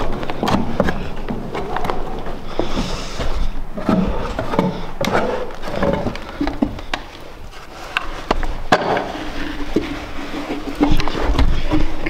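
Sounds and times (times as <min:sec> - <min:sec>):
boots stepping down stairs: 0:00.0 - 0:07.4.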